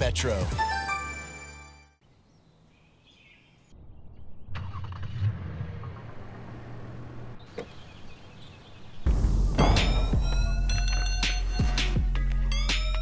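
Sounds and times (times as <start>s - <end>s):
faint birdsong: 2.0s - 10.9s
car engine starting and idling: 4.5s - 8.5s.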